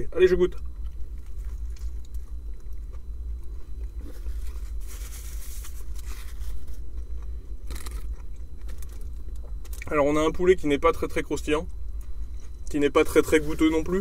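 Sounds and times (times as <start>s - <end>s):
low hum: 0.0s - 14.0s
person chewing: 0.6s - 4.9s, 5.5s - 9.9s.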